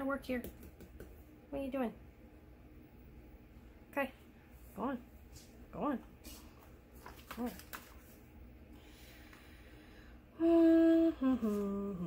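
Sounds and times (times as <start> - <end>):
woman humming: 10.3 - 12.0.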